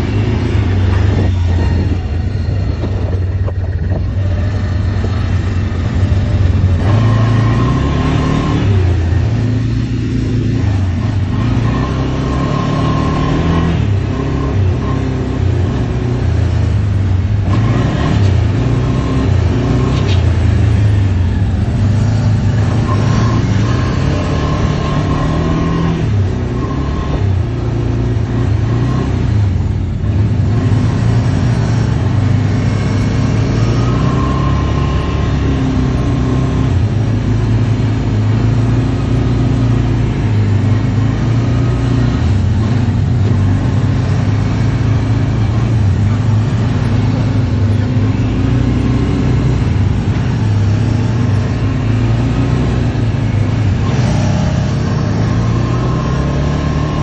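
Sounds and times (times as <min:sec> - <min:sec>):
atv engines running: 0:00.0 - 0:57.0.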